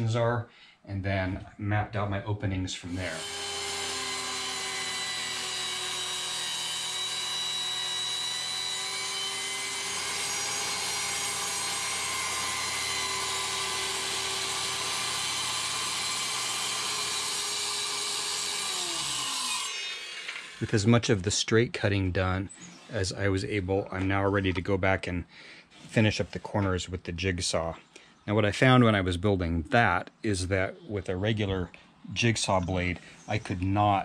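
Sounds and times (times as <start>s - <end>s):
circular saw cutting wood: 2.8s - 20.9s.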